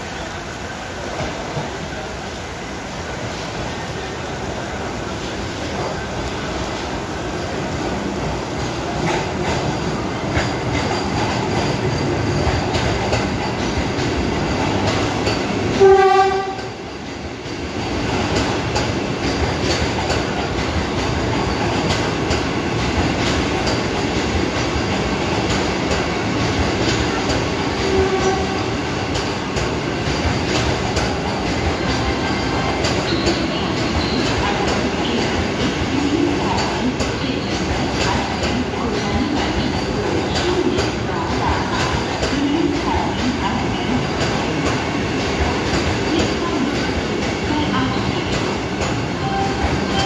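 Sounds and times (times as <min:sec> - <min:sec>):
electric train rolling: 0:00.0 - 0:50.0
train horn blast: 0:15.7 - 0:16.8, 0:27.8 - 0:28.8.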